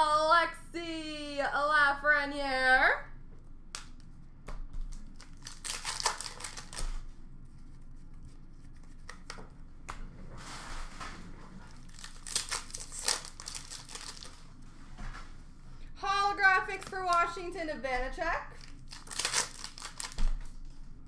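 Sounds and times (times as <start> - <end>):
foil wrappers crinkling: 4.9 - 7.1, 11.7 - 14.6, 18.5 - 20.6.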